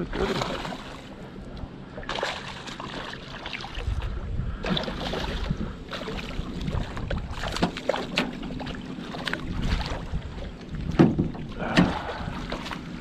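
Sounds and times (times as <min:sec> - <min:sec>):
fish splashing at surface: 0:02.0 - 0:03.8
wind rumble on microphone: 0:03.5 - 0:13.0.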